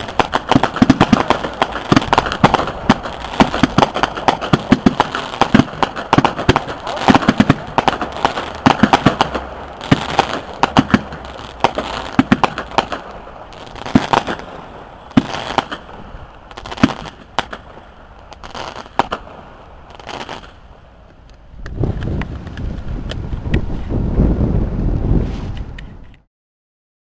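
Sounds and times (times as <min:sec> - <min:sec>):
fireworks bangs and crackle: 0:00.0 - 0:20.7, 0:21.6 - 0:25.8.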